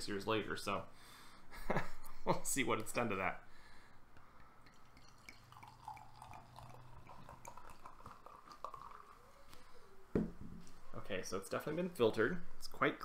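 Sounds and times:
beer pouring into a glass: 4.6s - 9.4s.

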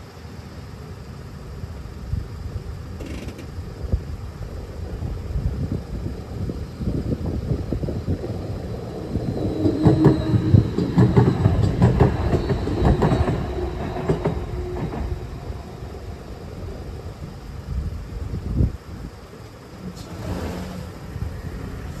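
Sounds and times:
tram wheels clacking over rail joints: 8.1s - 17.0s.

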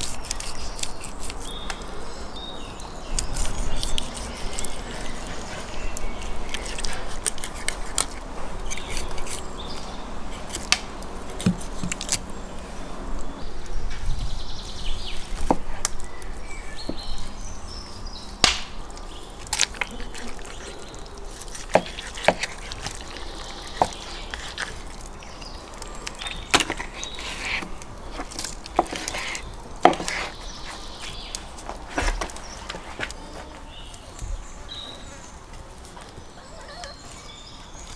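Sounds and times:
knife scraping and cutting fish: 0.0s - 1.7s, 3.1s - 9.5s, 19.6s - 33.2s.

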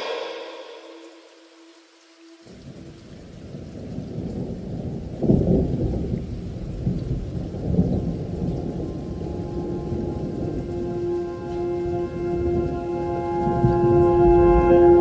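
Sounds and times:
rain rushing: 0.0s - 15.0s
thunder rolling: 3.4s - 15.0s.

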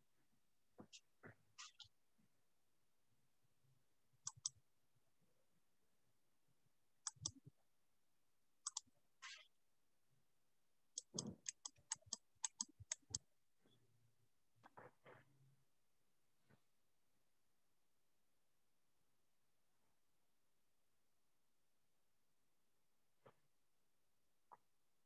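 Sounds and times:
mouse clicks: 4.2s - 4.6s, 7.0s - 7.4s, 8.6s - 8.9s, 11.0s - 13.2s
keyboard key presses: 11.0s - 13.2s.

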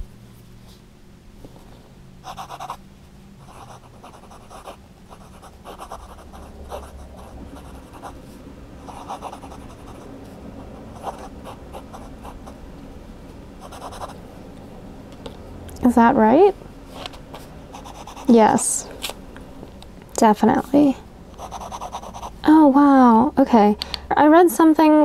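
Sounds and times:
pen nib scratching paper: 2.2s - 2.8s, 3.4s - 8.2s, 8.9s - 10.1s, 17.8s - 18.3s, 21.4s - 22.4s.

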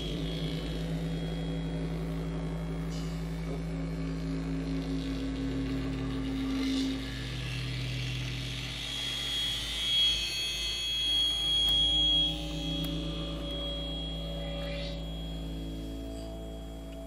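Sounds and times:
low synthesizer drone: 0.0s - 17.0s
high whistling tone: 6.1s - 17.0s.

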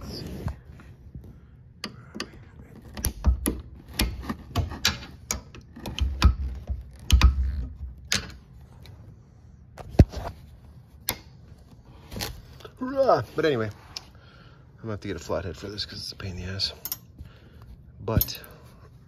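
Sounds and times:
clicks scrapes and knocks: 1.8s - 9.0s.

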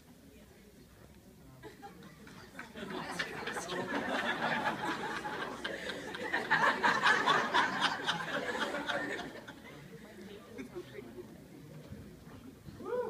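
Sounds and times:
people laughing: 1.6s - 11.3s.

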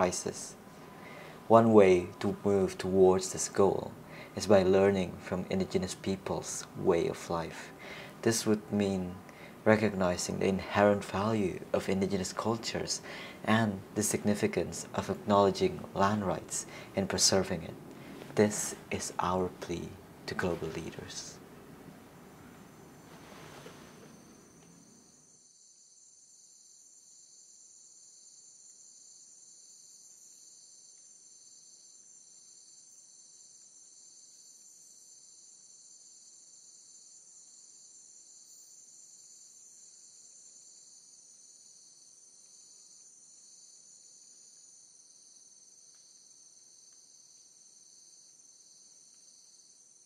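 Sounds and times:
insects buzzing high-pitched: 22.6s - 50.0s.

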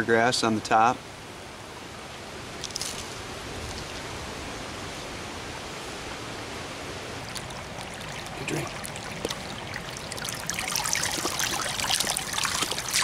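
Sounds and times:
creek trickling: 2.5s - 5.1s, 6.6s - 13.0s
dog splashing in water: 7.3s - 13.0s.

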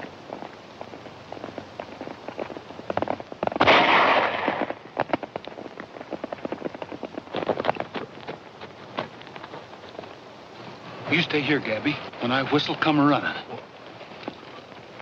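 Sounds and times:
horse hooves galloping: 0.0s - 15.0s
gunshot with ringing tail: 3.6s - 4.8s.

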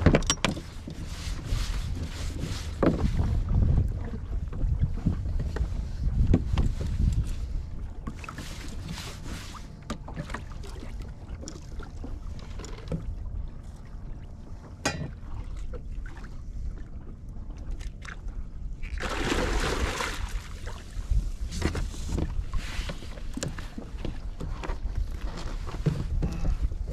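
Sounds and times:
wind on microphone: 0.0s - 9.6s, 18.6s - 26.9s
water moving against kayak: 0.0s - 26.9s.

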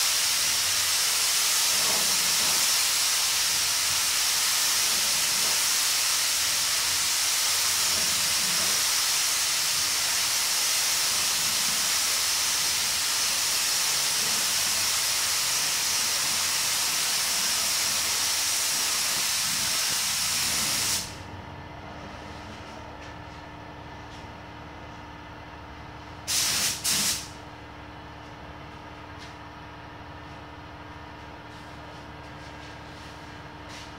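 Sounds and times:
spray gun air hiss: 0.0s - 21.2s, 26.3s - 27.4s
steady hum: 11.1s - 33.9s.

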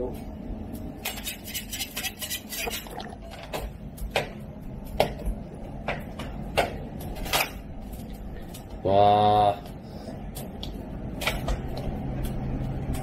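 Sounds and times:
metal scraper scraping on marble: 1.0s - 3.0s.

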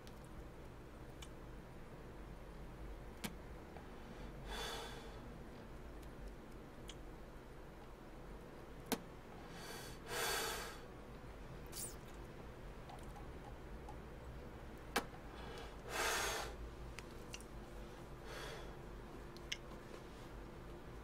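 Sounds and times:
man exhaling smoke: 9.5s - 10.8s, 15.4s - 16.6s.

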